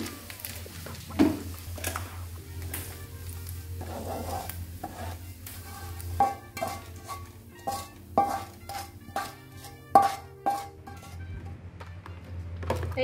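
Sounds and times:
oil sizzling in a wok: 0.0s - 11.2s
spatula knocking against wok: 6.2s - 11.2s.

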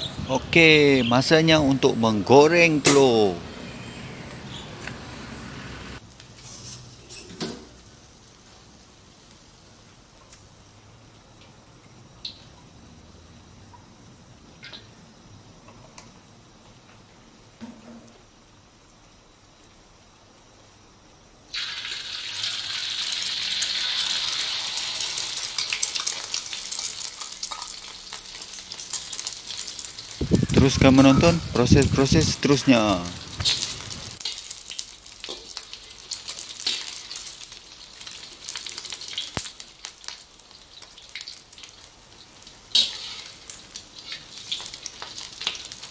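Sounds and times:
batter sizzling in hot oil: 5.8s - 11.6s, 21.5s - 45.9s
oil crackling and spitting: 21.5s - 30.9s, 33.1s - 45.9s.

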